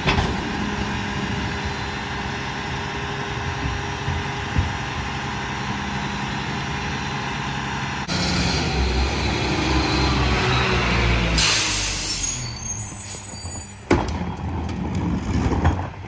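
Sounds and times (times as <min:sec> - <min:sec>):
garbage truck engine idling: 0:00.0 - 0:08.2
truck driving: 0:00.0 - 0:16.0.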